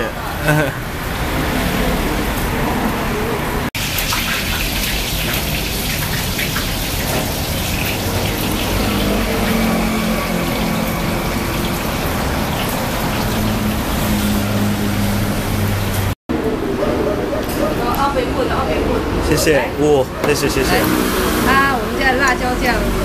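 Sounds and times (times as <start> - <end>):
street traffic noise: 0.0 - 23.0
vehicle engine humming: 6.6 - 23.0.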